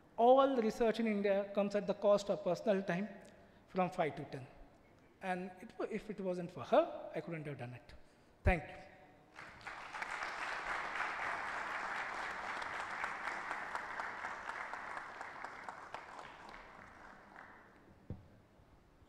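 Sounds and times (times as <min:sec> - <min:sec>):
audience applause: 0:09.4 - 0:17.9.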